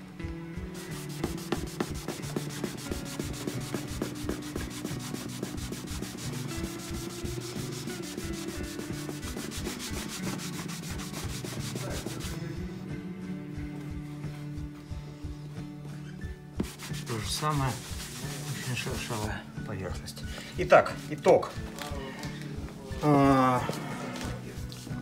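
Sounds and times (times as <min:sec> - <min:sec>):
cloth scrubbing wooden floor: 0:00.8 - 0:12.4, 0:16.6 - 0:19.3.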